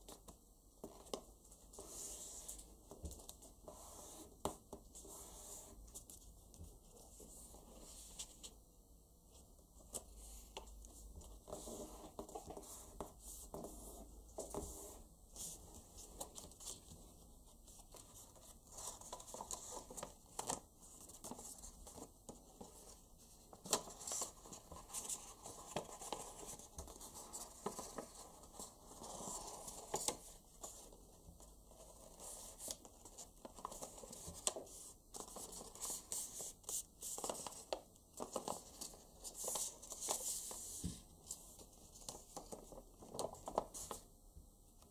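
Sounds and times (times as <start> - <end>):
paper rustling and crinkling: 9.8 - 44.1.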